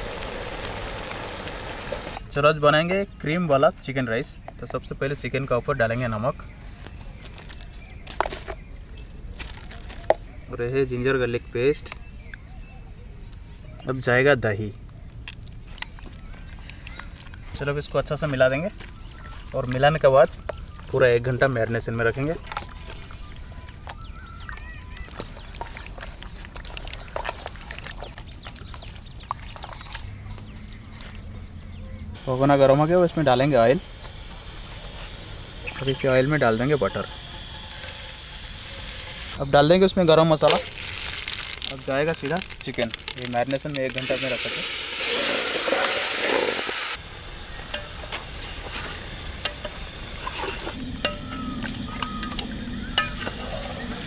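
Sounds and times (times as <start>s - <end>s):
chicken sizzling in hot oil: 0.0s - 2.2s, 37.4s - 39.4s, 40.5s - 50.8s
faint high chirping: 15.9s - 39.4s, 50.8s - 54.0s
hand squelching meat in marinade: 22.4s - 30.1s, 40.5s - 44.5s
spatula scraping a pot: 47.7s - 51.2s.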